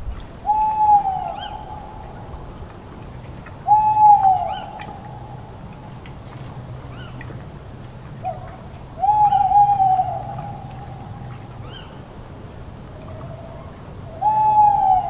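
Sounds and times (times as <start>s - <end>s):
owl hooting: 0.5s - 2.2s, 3.7s - 5.4s, 9.0s - 12.0s, 13.2s - 15.0s.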